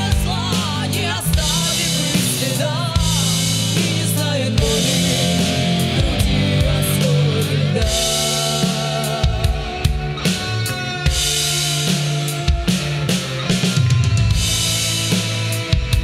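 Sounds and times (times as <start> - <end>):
women singing: 0.0 - 10.2
bass guitar: 0.0 - 16.0
electric guitar: 0.0 - 16.0.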